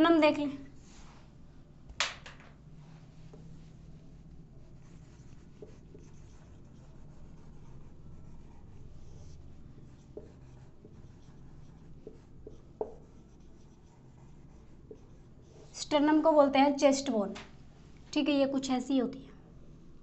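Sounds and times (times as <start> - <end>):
marker scratching on whiteboard: 3.3 - 17.1.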